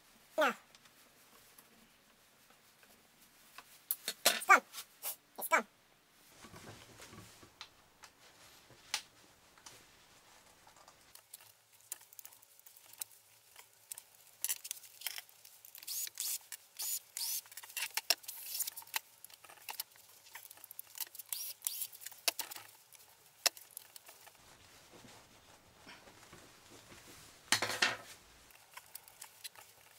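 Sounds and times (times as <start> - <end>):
small tools and screws clicking: 11.2 - 24.2.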